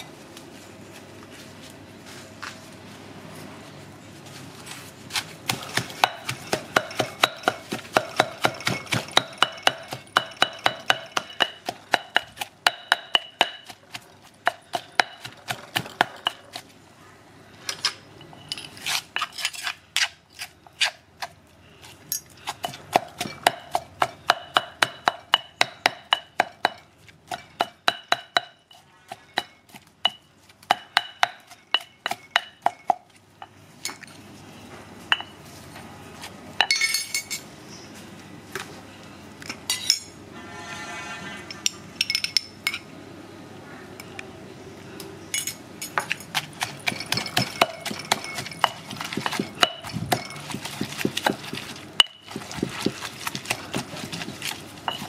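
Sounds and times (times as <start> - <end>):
stone pestle pounding in mortar: 5.5 - 16.6, 22.5 - 33.0, 46.0 - 55.0.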